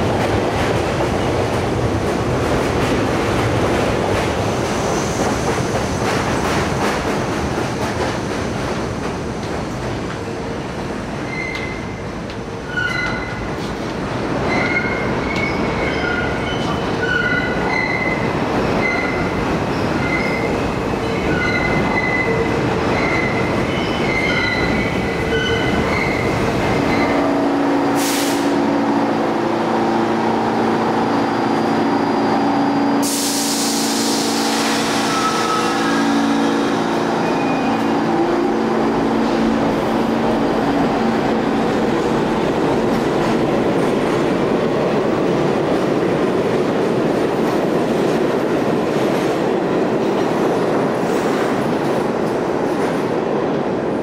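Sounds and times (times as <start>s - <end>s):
subway train rumbling on rails: 0.0s - 54.0s
loud rushing hiss: 27.8s - 28.9s, 32.2s - 37.3s.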